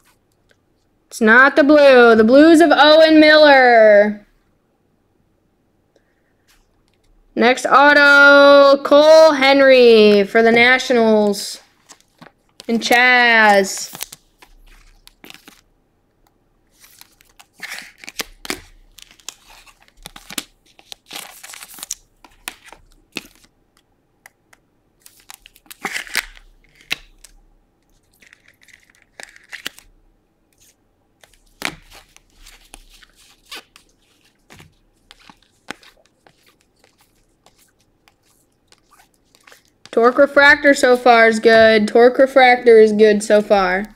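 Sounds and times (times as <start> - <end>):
cards shuffled and handled: 10.2 - 15.6, 16.7 - 29.9, 30.5 - 40.2
wrappers tearing and crinkling: 11.6 - 15.7, 16.7 - 23.5, 25.0 - 29.9, 30.6 - 39.9.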